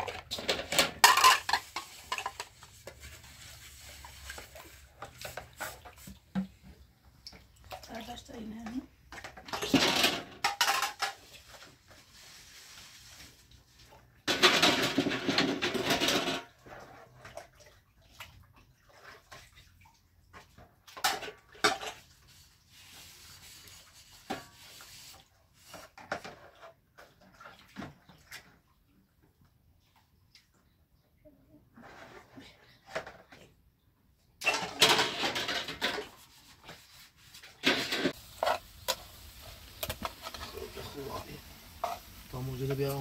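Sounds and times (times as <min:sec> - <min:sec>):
dishes clinking: 0:00.0 - 0:02.5, 0:09.4 - 0:11.2.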